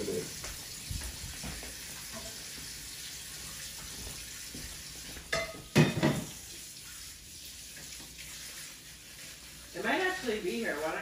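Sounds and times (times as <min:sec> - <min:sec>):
fork clinking on plate: 0:05.3 - 0:06.2.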